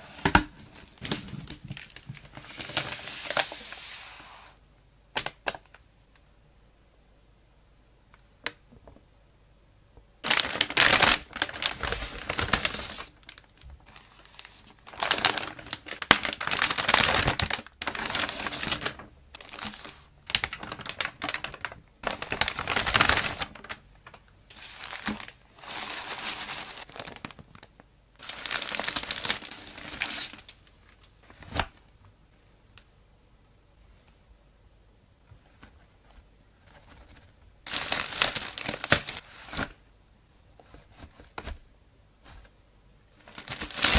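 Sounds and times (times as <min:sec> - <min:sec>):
plastic bags crinkling: 0:00.0 - 0:03.7, 0:10.2 - 0:31.1, 0:37.6 - 0:39.2, 0:43.2 - 0:43.9.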